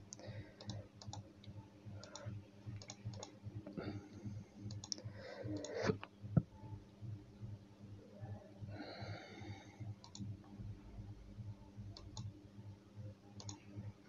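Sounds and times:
low background hum: 0.0 - 14.0
computer mouse clicks: 0.1 - 3.4, 4.7 - 6.1, 10.0 - 10.3, 11.9 - 12.3, 13.4 - 13.8.

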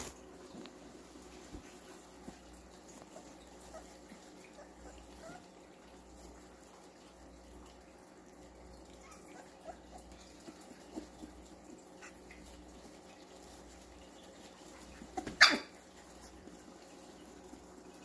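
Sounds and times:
puppies squeaking: 15.1 - 15.8.

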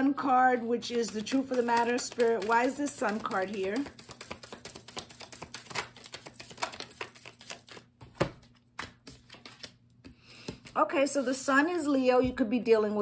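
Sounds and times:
cards being shuffled: 0.9 - 11.3.

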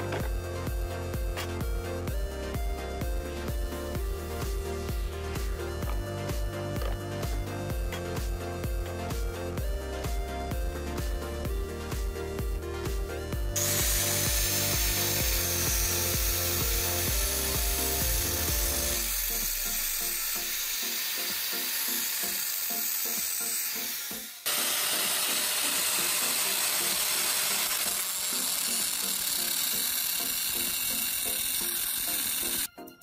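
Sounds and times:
background music with steady beat: 0.0 - 33.0
angle grinder grinding metal: 3.4 - 9.2, 13.6 - 32.7.

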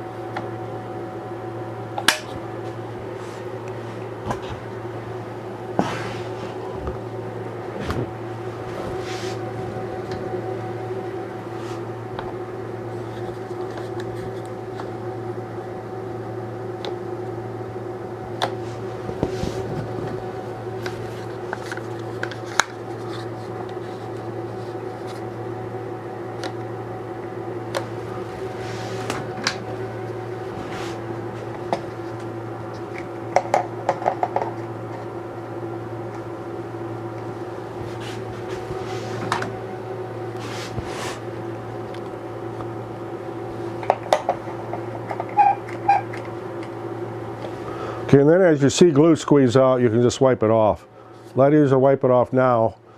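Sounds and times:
steady low hum: 0.0 - 52.9.

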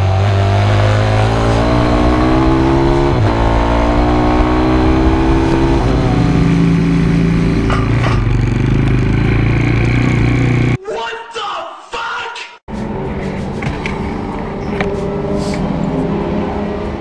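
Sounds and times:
motorbike engine accelerating: 0.0 - 10.8.

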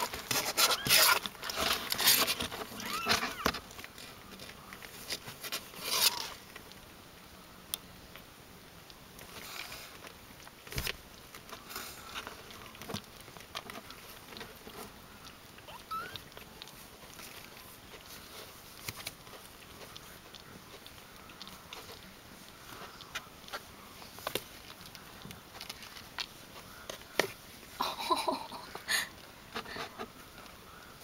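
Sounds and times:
kittens rustling on blanket: 0.0 - 6.9, 9.2 - 30.9
kitten squeak: 0.6 - 1.2, 2.8 - 3.5, 15.7 - 16.3.

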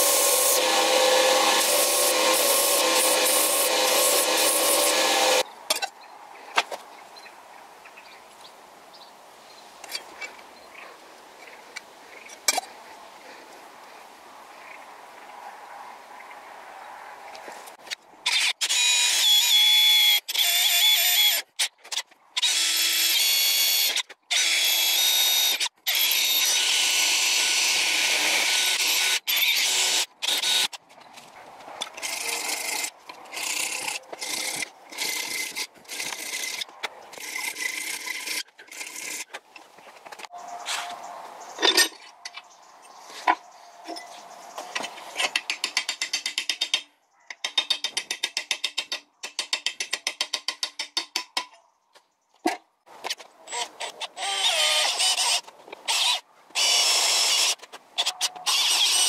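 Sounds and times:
drill boring through brass: 0.0 - 5.4, 22.4 - 30.7.

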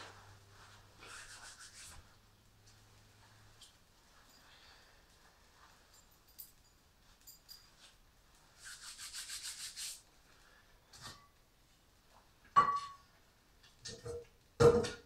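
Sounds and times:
rapid rasping rub: 1.0 - 2.1, 8.6 - 10.0
cookware clanking on metal: 12.6 - 13.0.

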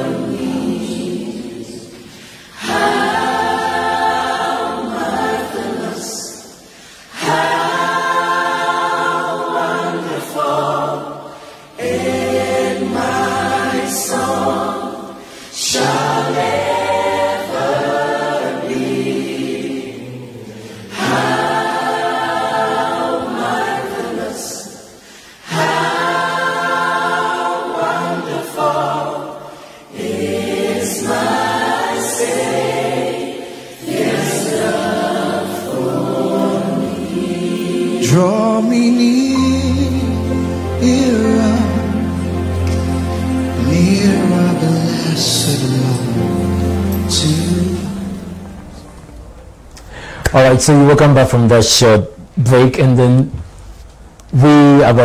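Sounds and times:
gospel choir singing: 0.0 - 55.0.

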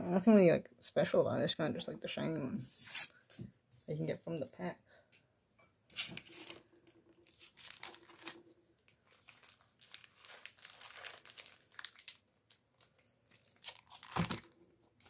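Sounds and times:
foil packs crinkling: 6.1 - 14.6.

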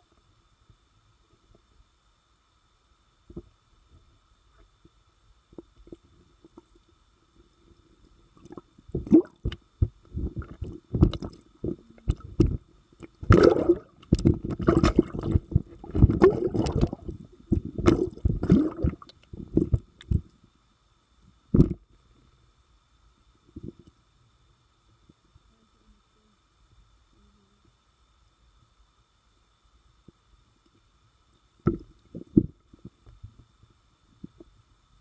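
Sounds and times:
muffled underwater bumps and thuds: 8.9 - 12.6, 13.2 - 20.3, 21.5 - 21.8, 31.6 - 33.3.

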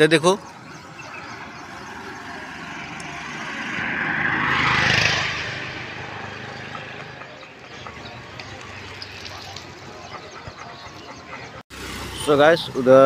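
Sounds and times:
road vehicle passing: 0.0 - 13.0
street traffic: 0.0 - 13.0.

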